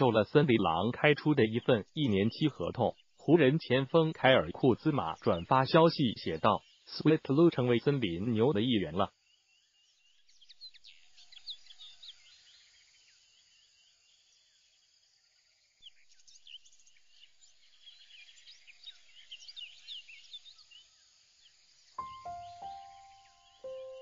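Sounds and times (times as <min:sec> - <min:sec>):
wildlife chirping: 0:00.0 - 0:09.1, 0:22.0 - 0:24.0
low hiss: 0:21.7 - 0:24.0.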